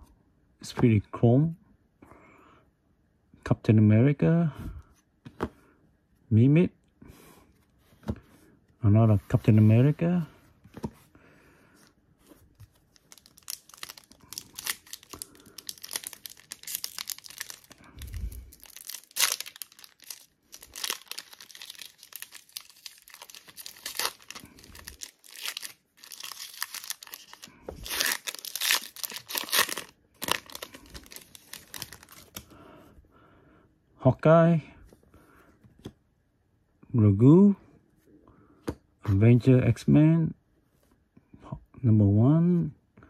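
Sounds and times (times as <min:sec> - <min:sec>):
wrapper crinkling and tearing: 0:12.8 - 0:32.5.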